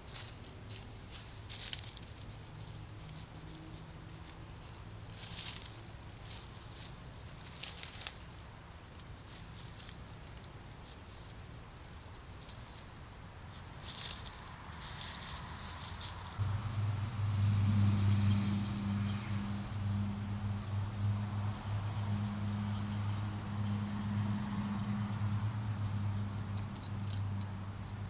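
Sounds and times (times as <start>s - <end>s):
soft rustling and crackling: 0.0s - 16.4s.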